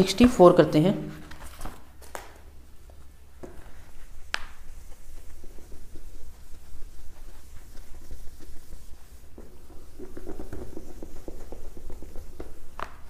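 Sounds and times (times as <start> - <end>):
steady low hum: 0.0 - 13.0
eraser rubbing on whiteboard: 3.4 - 13.0.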